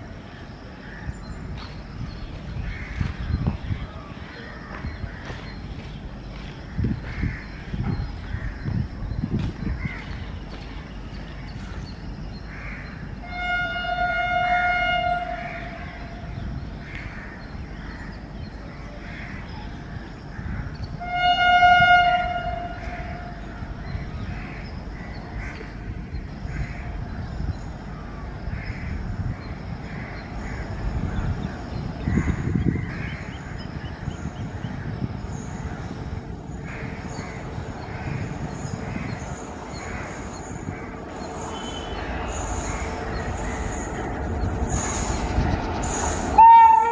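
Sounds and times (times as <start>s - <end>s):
train rumbling: 0.0s - 46.9s
locomotive horn blasts: 13.2s - 15.4s, 21.0s - 23.4s, 46.4s - 46.9s.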